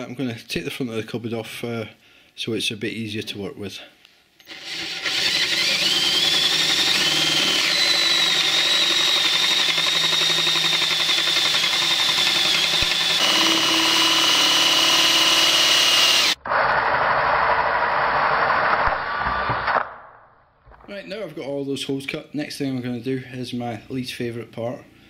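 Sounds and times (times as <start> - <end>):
power drill boring through wood: 4.5 - 19.8.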